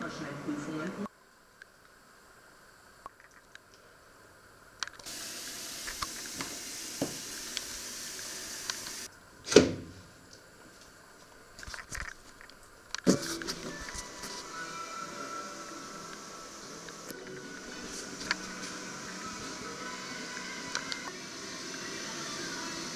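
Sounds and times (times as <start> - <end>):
kitchen tap running: 5.0 - 9.1.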